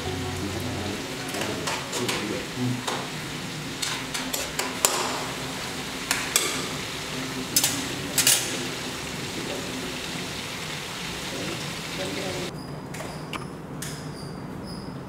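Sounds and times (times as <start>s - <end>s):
chicken frying in hot oil: 0.0s - 12.5s.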